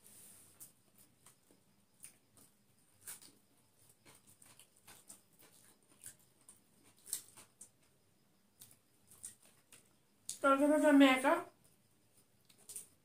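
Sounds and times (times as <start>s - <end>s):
chewing mouth clicks and smacks: 1.2s - 7.9s, 8.6s - 10.4s, 12.4s - 13.0s.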